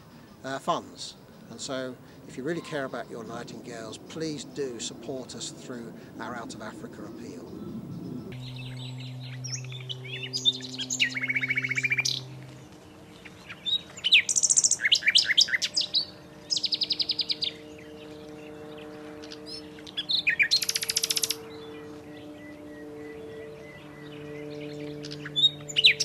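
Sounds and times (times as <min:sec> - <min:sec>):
nightingale singing: 0:13.5 - 0:17.6, 0:19.5 - 0:21.4.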